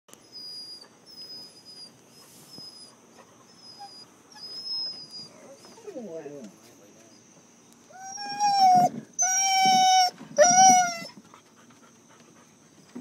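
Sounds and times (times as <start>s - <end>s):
dog whimpering: 0.3s - 6.3s, 7.9s - 11.1s.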